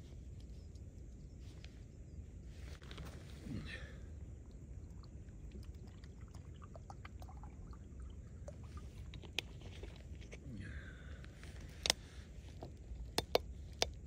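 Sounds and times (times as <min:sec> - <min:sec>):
water trickling into a pot: 0:04.2 - 0:09.6.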